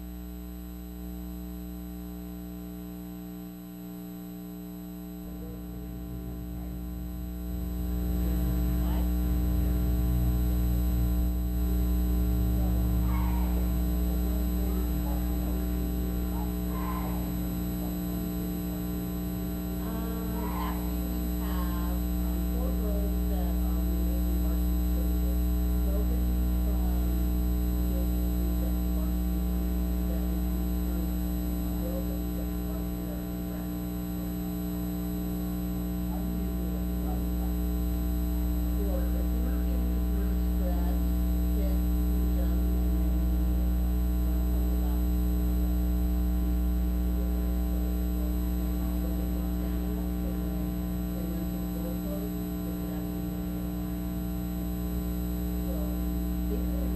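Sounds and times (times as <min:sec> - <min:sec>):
electrical mains hum: 0:00.0 - 0:56.9
faint voices: 0:12.4 - 0:18.0, 0:19.8 - 0:27.1.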